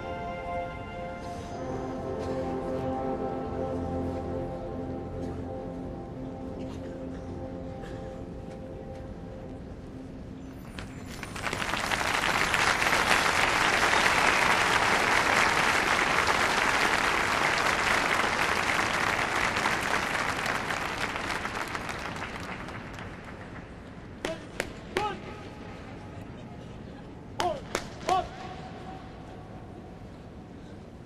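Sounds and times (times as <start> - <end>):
stadium crowd applauding: 10.7 - 24.2.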